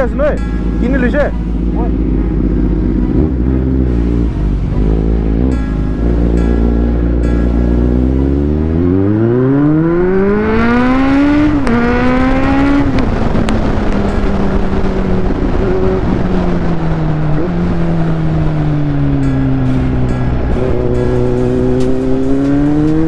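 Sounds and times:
motorcycle engine revving: 0:00.0 - 0:23.0
wind noise: 0:10.0 - 0:23.0.

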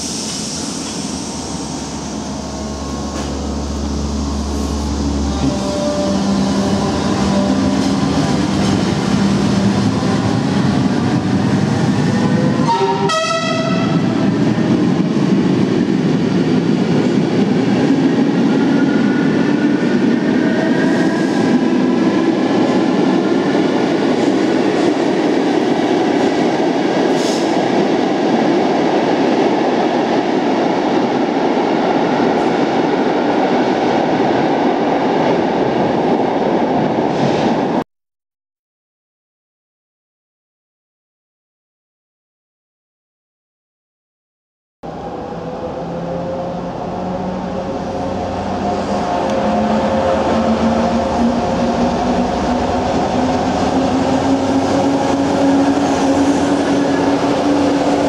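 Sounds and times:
train wheels rumbling on rail: 0:00.0 - 0:37.8, 0:44.9 - 0:58.0
train horn blast: 0:02.7 - 0:08.2, 0:12.3 - 0:14.2.

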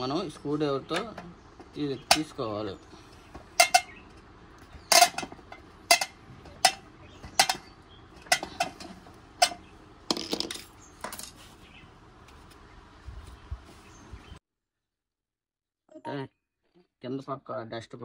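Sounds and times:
tools clattering down: 0:03.3 - 0:04.0, 0:04.7 - 0:11.4.

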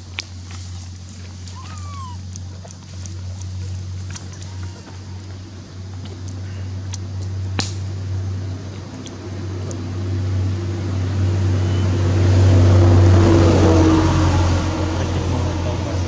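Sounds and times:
vehicle engine humming: 0:00.0 - 0:16.0.

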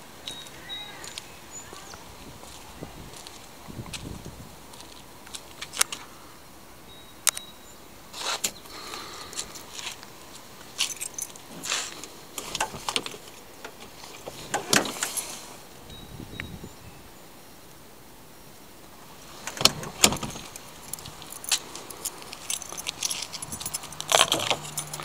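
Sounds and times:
keys jangling: 0:10.8 - 0:13.2, 0:19.4 - 0:25.0.

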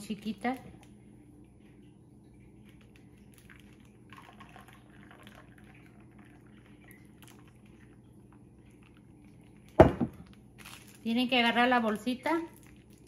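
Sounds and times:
low steady hum: 0:00.0 - 0:13.0
thick liquid pouring: 0:02.3 - 0:11.0
plastic rustling: 0:08.7 - 0:13.0.

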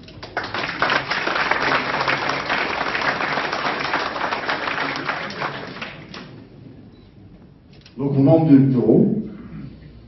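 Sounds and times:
audience applauding: 0:00.1 - 0:06.4.

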